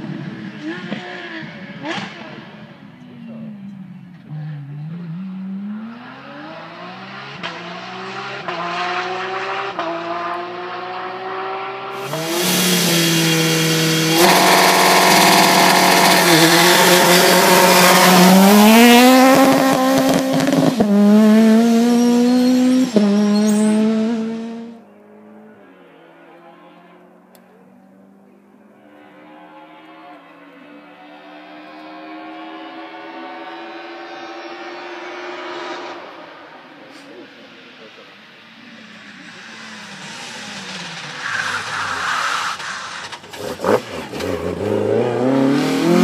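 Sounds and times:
rally car engines revving: 0.0s - 46.0s.

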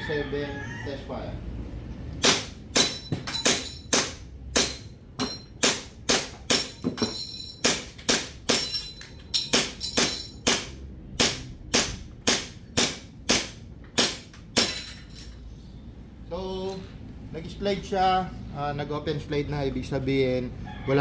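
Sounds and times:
airsoft pistol shots: 2.2s - 4.8s.

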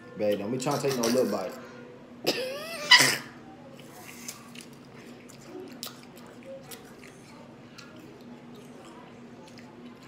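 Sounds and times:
faint chewing of apple: 3.7s - 10.0s.

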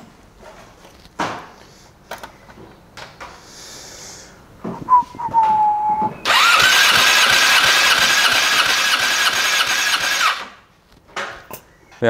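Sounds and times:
engine cranking with starter whine: 6.2s - 10.6s.

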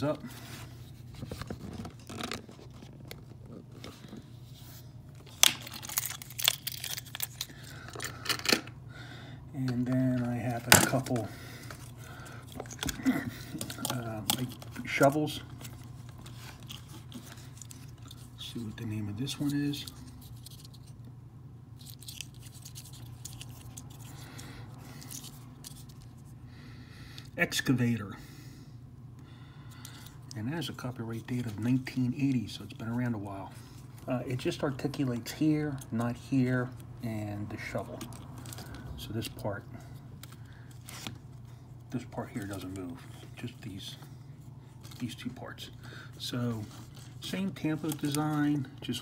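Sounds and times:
faint steady hum: 0.0s - 49.0s
crinkling rustles: 0.3s - 8.5s, 9.8s - 21.0s, 37.5s - 49.0s.

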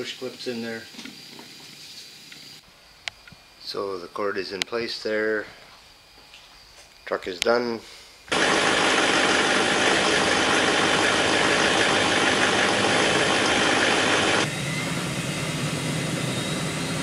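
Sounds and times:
diesel engine idling: 8.3s - 14.5s.

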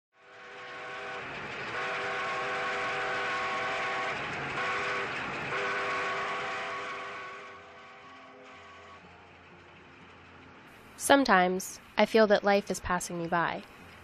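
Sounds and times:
steam locomotive whistle blasts: 0.2s - 9.1s
passing train noise: 0.2s - 14.0s.

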